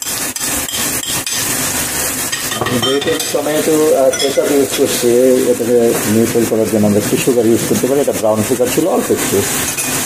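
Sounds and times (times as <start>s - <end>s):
wooden spatula scraping pan: 0.0s - 7.8s
gravy sizzling in a frying pan: 0.0s - 10.0s.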